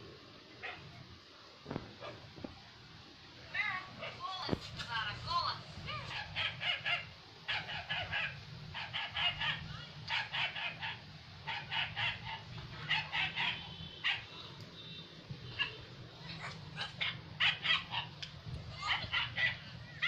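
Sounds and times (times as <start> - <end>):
dog yapping through phone speaker: 5.9 - 14.4, 15.5 - 18.2, 18.8 - 20.0.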